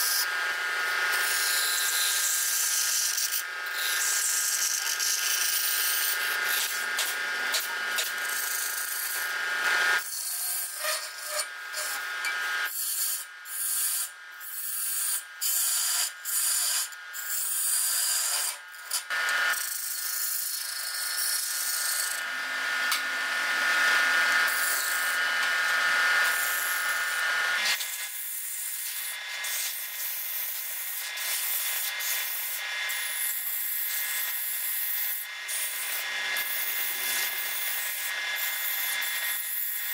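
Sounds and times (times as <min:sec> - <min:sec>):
wood lathe whining: 0:00.0 - 0:13.2, 0:17.4 - 0:28.4, 0:32.6 - 0:39.9.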